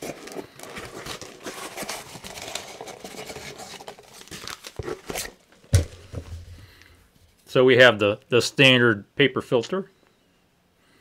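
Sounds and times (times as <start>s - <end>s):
paper packing material crinkling: 0.0s - 5.4s.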